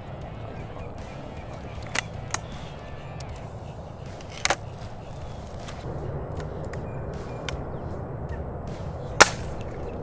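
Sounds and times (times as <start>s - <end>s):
steady low rumble: 0.0s - 10.0s
air rifle shot: 9.2s - 9.7s.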